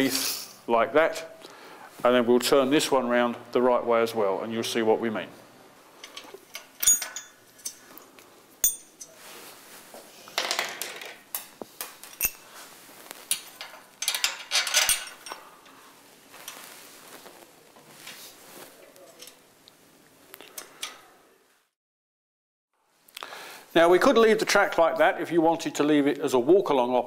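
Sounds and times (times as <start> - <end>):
metal parts clinking and rattling: 6.0 - 8.0, 8.6 - 9.2, 10.4 - 12.5, 13.3 - 15.4.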